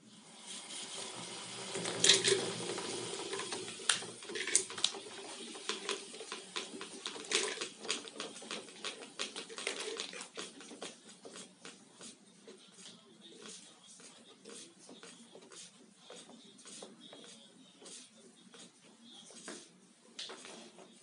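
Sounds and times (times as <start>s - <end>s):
rope spool whirring and clicking: 0.2s - 11.8s.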